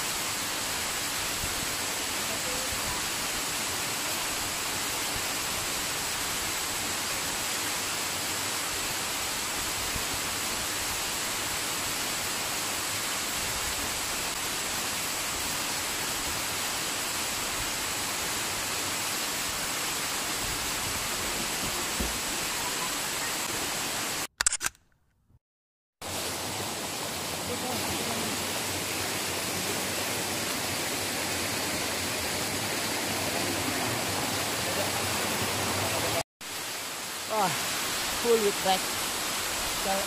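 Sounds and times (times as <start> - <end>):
waterfall rushing: 0.0 - 24.3, 26.0 - 40.0
short clicks: 24.4 - 25.4.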